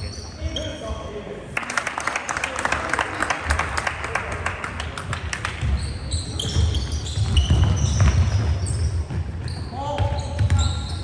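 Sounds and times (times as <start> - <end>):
sneaker squeaks: 0.0 - 1.1, 5.6 - 11.0
basketball bouncing: 6.4 - 10.6.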